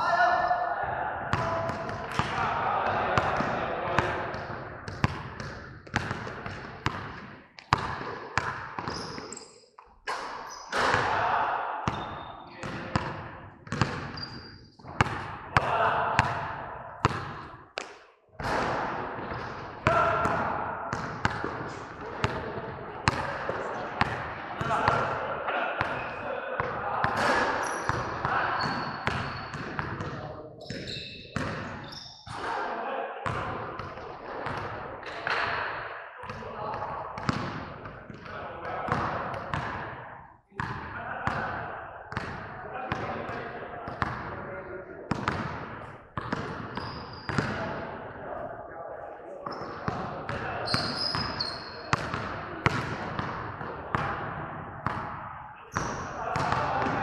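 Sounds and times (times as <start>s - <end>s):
voices: 0.0s - 4.7s, 10.7s - 13.4s, 15.5s - 16.9s, 19.4s - 37.3s, 40.5s - 45.4s, 55.6s - 57.0s.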